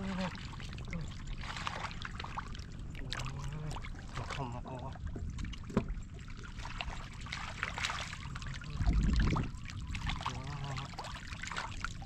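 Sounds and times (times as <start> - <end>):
muddy water splashing: 0.0 - 12.0
low rumble: 8.2 - 10.8.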